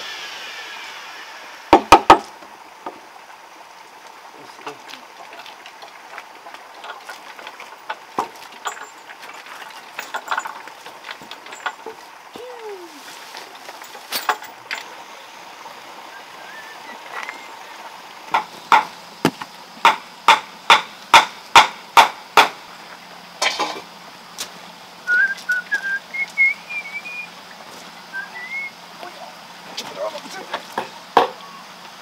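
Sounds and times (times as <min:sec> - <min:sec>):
sharp knocks: 0:01.7 - 0:02.3, 0:18.3 - 0:22.6
faint bird chirps: 0:16.1 - 0:17.8.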